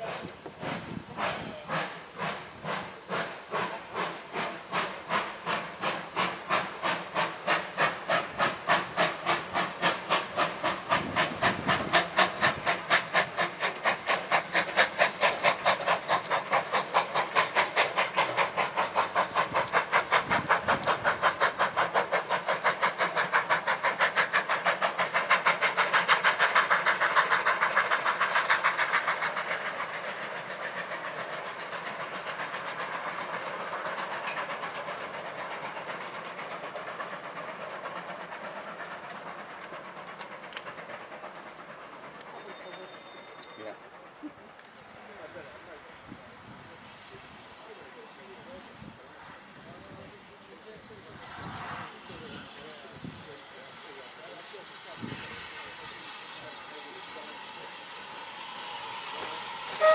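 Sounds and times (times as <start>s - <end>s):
steam hissing: 0.0s - 59.9s
steam locomotive chuffing: 0.0s - 59.9s.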